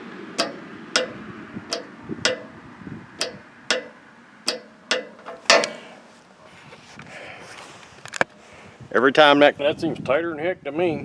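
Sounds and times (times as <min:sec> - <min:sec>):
torque wrench clicking: 0:00.4 - 0:02.6, 0:03.2 - 0:05.8.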